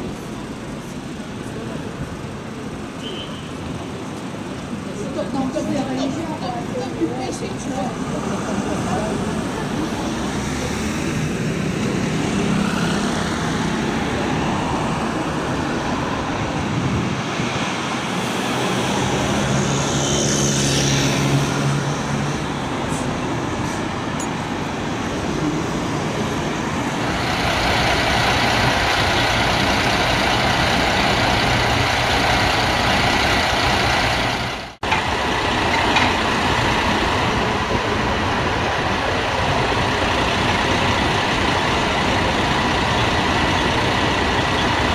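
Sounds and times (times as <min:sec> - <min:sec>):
city street traffic: 0:00.0 - 0:44.9
diesel truck engine running: 0:26.8 - 0:44.9.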